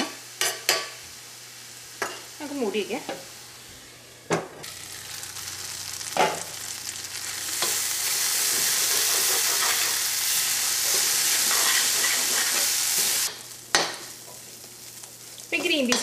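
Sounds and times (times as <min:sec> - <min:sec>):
food sizzling in a pan: 0:00.0 - 0:16.0
spatula stirring in pan: 0:07.6 - 0:10.1, 0:10.8 - 0:14.5.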